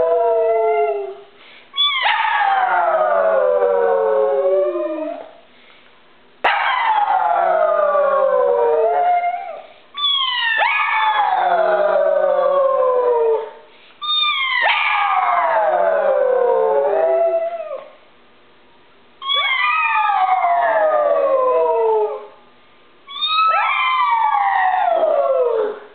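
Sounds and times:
dog howling: 0:00.0 - 0:01.2, 0:01.8 - 0:05.4, 0:06.5 - 0:17.9, 0:19.2 - 0:22.3, 0:23.1 - 0:25.9
woman howling: 0:23.1 - 0:25.8.

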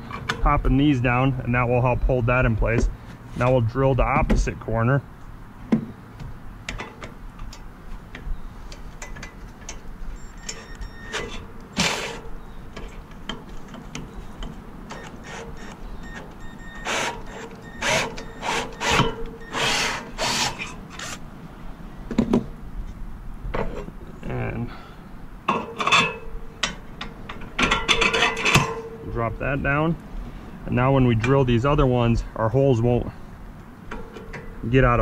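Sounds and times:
cordless drill boring into wood: 0:16.8 - 0:21.1.

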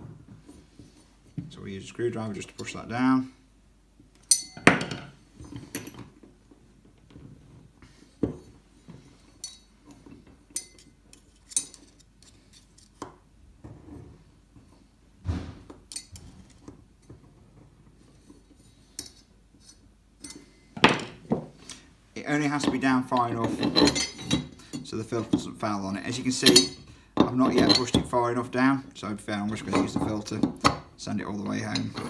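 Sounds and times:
screwdriver clinking on metal: 0:04.2 - 0:04.9, 0:09.4 - 0:12.0, 0:15.9 - 0:16.3, 0:22.6 - 0:25.4, 0:26.2 - 0:28.1.

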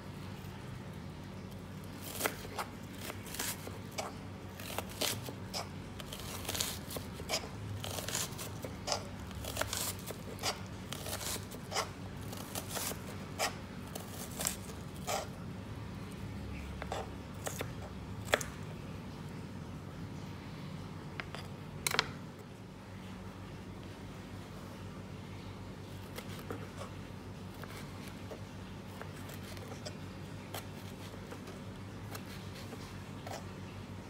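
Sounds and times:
knife chopping onion on board: 0:02.0 - 0:15.3, 0:16.8 - 0:18.5.

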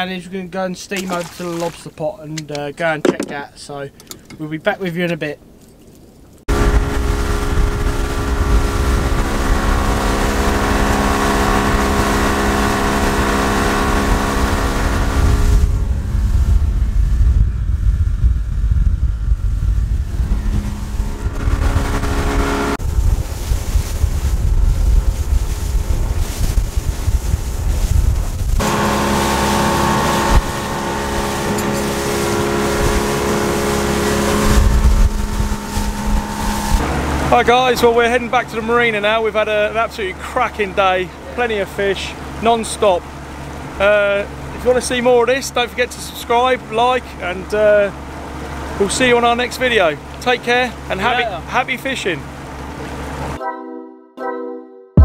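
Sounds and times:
water rushing: 0:00.8 - 0:04.3, 0:06.5 - 0:17.0, 0:19.8 - 0:53.4
outboard motor running: 0:01.0 - 0:01.8, 0:06.5 - 0:53.4
wind rushing: 0:13.9 - 0:37.8.

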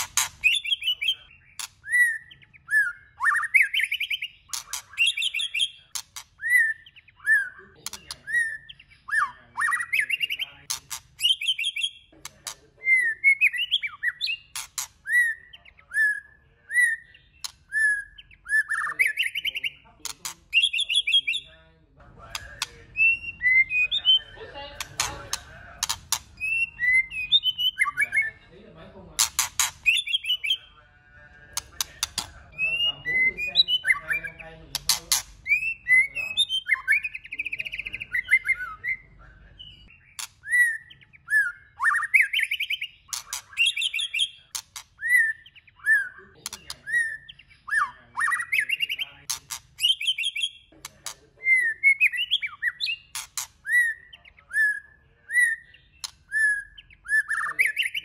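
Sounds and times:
bird clicking notes: 0:00.0 - 0:00.9, 0:24.8 - 0:26.7, 0:29.2 - 0:30.1, 0:31.5 - 0:32.4, 0:34.7 - 0:35.6
bird singing whistled phrases: 0:00.0 - 0:10.6, 0:11.2 - 0:12.1, 0:12.8 - 0:19.9, 0:20.5 - 0:21.6, 0:22.3 - 0:24.4, 0:25.8 - 0:28.4, 0:32.1 - 0:49.2, 0:49.8 - 0:50.7, 0:51.4 - 0:58.0.

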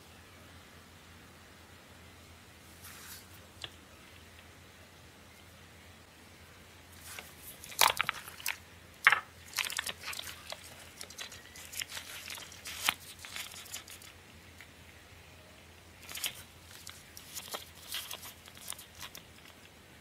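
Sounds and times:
paper parts being handled: 0:07.0 - 0:14.2, 0:16.0 - 0:19.7
plastic film crinkling and tearing: 0:07.0 - 0:14.2, 0:16.0 - 0:19.6.

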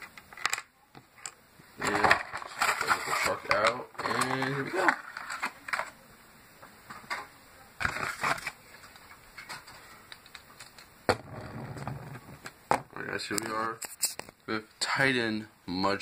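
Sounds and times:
packaging rustling and scraping: 0:01.8 - 0:06.0, 0:07.8 - 0:14.4.

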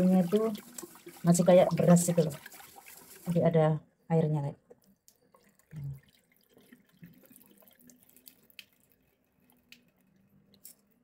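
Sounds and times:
tap water running into sink: 0:00.0 - 0:03.5, 0:05.4 - 0:09.0
small splashes and drips: 0:00.0 - 0:03.6, 0:04.7 - 0:11.0.

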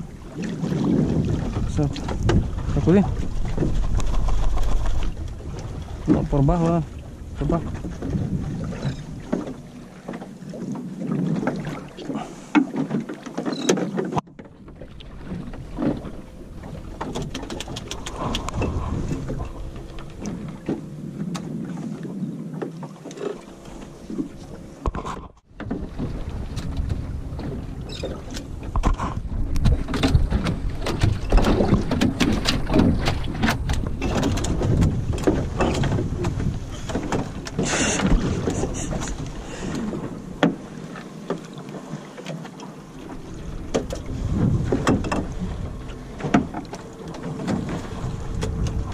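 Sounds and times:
wind buffeting microphone: 0:00.0 - 0:12.3, 0:14.6 - 0:22.7, 0:23.6 - 0:40.9, 0:43.0 - 0:48.9
short knocks and splashes: 0:00.0 - 0:48.9
water lapping against boat hull: 0:00.0 - 0:48.9.

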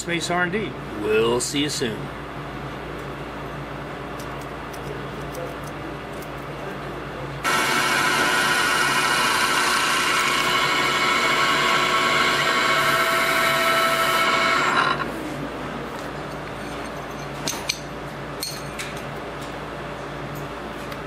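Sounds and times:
mill spindle drilling metal: 0:07.4 - 0:15.1.

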